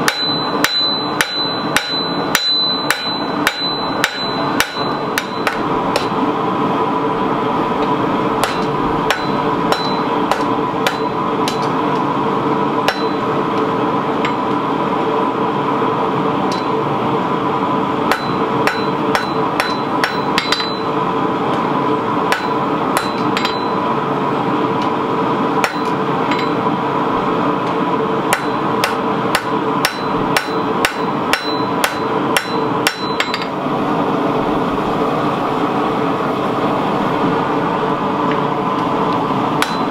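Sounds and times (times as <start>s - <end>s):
hammer striking steel on anvil: 0.0s - 6.2s, 8.4s - 12.0s, 12.8s - 14.6s, 16.5s - 16.8s, 18.1s - 21.0s, 22.3s - 23.9s, 25.6s - 26.6s, 28.3s - 33.6s, 39.6s - 39.9s
steady hum: 0.0s - 39.9s.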